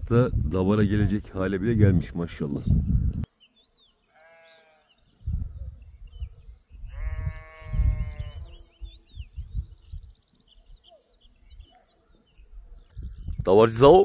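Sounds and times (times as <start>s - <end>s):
wind rumbling on microphone: 0.0s - 3.3s, 5.0s - 14.0s
small birds chirping: 0.1s - 14.0s
sheep bleating: 4.1s - 5.0s, 6.9s - 8.8s.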